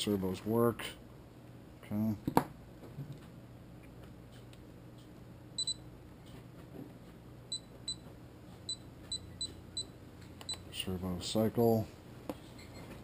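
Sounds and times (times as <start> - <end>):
transmitter key-press beeps: 5.6 - 5.8.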